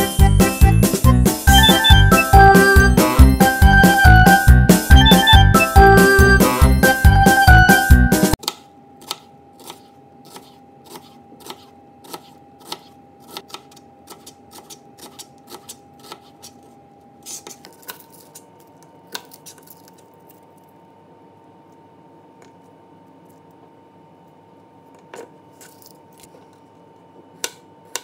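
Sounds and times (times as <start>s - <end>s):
knife slicing on cutting board: 9.0s - 16.6s.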